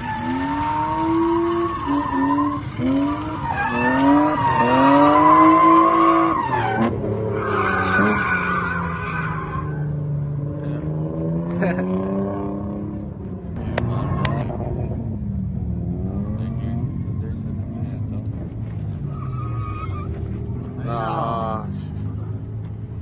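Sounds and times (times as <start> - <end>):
tyres squealing: 0.0 - 9.9
car engine revving: 0.0 - 23.0.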